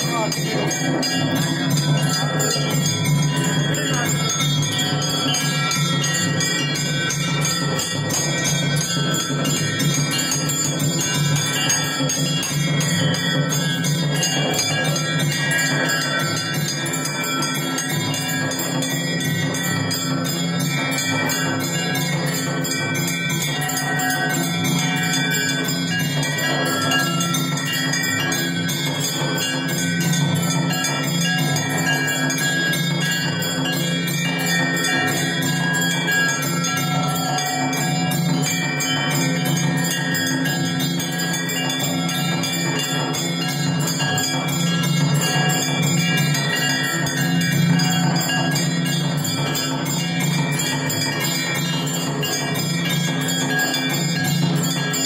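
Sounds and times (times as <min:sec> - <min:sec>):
metal gong plate clanging: 0:00.0 - 0:55.0
temple bells ringing: 0:00.0 - 0:55.0.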